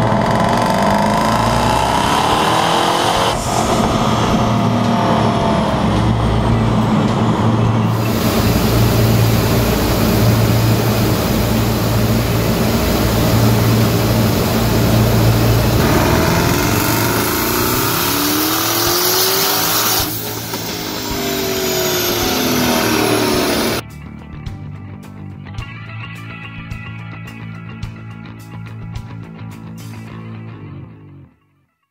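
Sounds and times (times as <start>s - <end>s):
car engine running hard: 0.0s - 23.8s
turbo whine falling in pitch: 0.0s - 23.8s.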